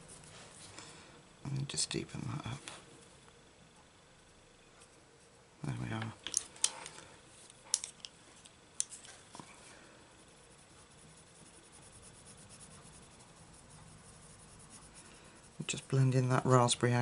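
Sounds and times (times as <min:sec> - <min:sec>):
pencil scratching on paper: 0:10.2 - 0:16.4.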